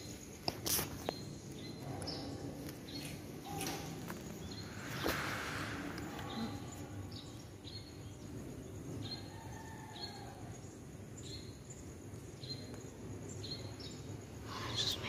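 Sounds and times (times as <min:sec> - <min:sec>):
small bird chirping: 0:00.0 - 0:09.3.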